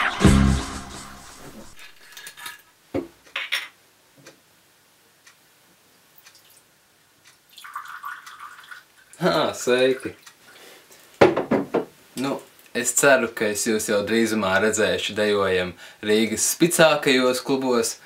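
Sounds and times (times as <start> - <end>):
choral music: 0.0 - 1.8
liquid pouring into glass: 7.5 - 9.2
glass bottle knocking on wooden desk: 11.2 - 11.9.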